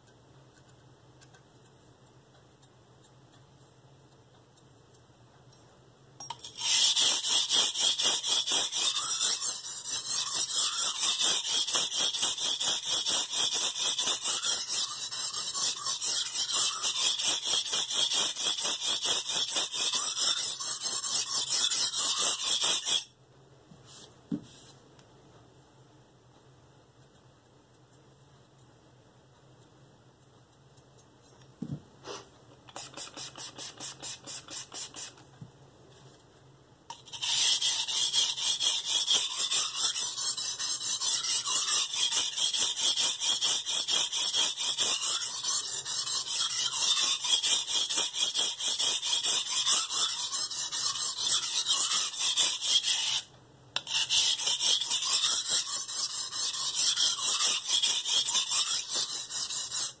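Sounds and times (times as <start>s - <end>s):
knife blade rasping on whetstone: 6.3s - 23.1s, 36.9s - 60.0s.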